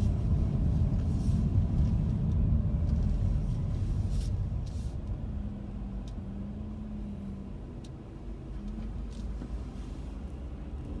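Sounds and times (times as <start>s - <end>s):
low engine hum: 0.0s - 11.0s
road traffic rumble: 0.0s - 11.0s.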